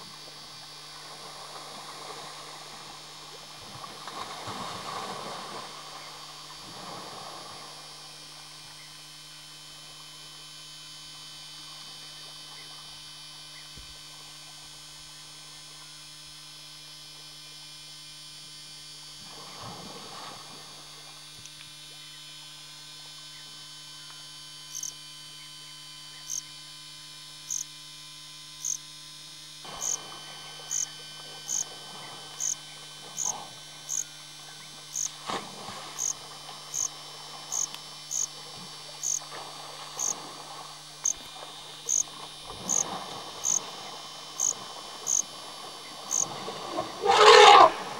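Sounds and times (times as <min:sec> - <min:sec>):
steady electrical hum: 0:00.0 - 0:47.9
faint outdoor background: 0:21.4 - 0:39.3, 0:40.8 - 0:47.8.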